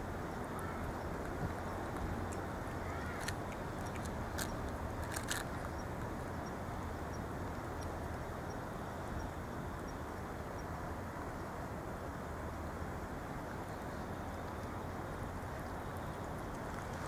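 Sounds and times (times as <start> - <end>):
cats chewing clicks: 3.2 - 5.6.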